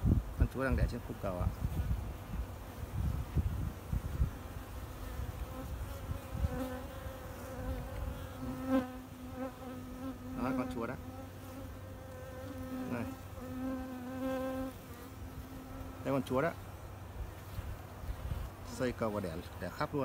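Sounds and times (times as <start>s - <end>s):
honeybees buzzing: 0.8s - 20.0s
bee flying close past: 1.6s - 16.3s.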